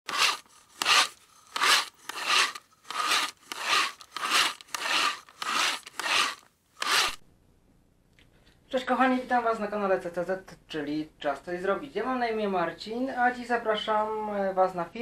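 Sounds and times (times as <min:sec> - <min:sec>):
hand tool rasping on wood: 0:00.0 - 0:07.2.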